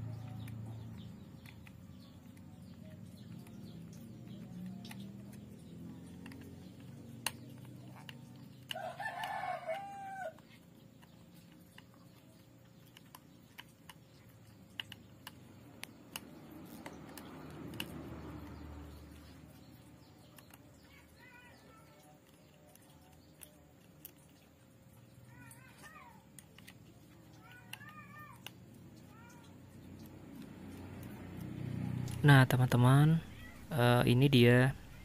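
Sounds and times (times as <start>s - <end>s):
screwdriver clicking on plastic: 0.1s - 19.0s
rooster crowing: 8.7s - 10.5s.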